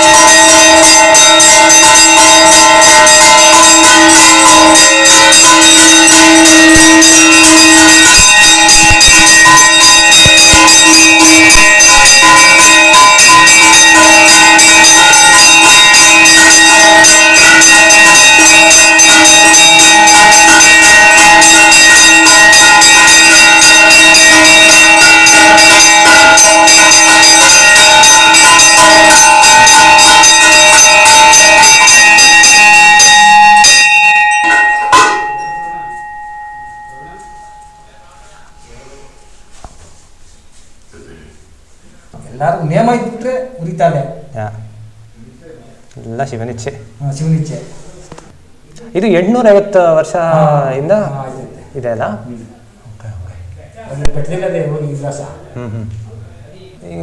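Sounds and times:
temple bells ringing rapidly: 0.0 - 39.6.

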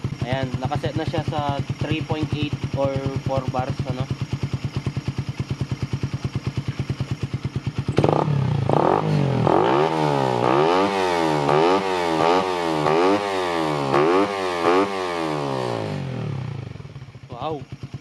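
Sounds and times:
motorcycle engine idling and revving: 0.0 - 18.0.

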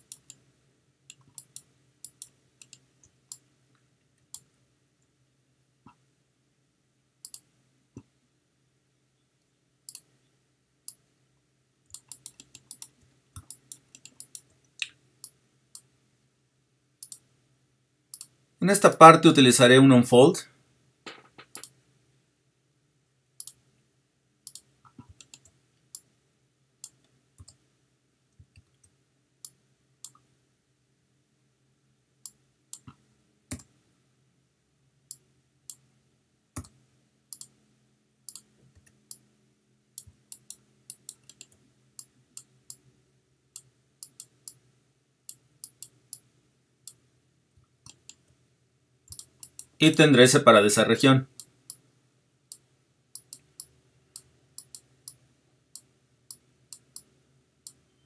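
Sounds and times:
computer mouse clicks: 0.0 - 0.4, 1.1 - 3.5, 7.2 - 8.1, 9.9 - 10.1, 11.9 - 15.9, 17.0 - 17.3, 18.1 - 18.4, 21.1 - 21.8, 23.4 - 23.6, 24.4 - 26.1, 26.8 - 27.6, 28.4 - 30.3, 32.2 - 33.8, 36.6 - 37.6, 38.3 - 39.3, 40.0 - 42.9, 43.6 - 44.6, 45.3 - 46.3, 47.6 - 48.4, 49.1 - 49.8, 52.5 - 57.8
faint steady hum: 0.0 - 58.0.

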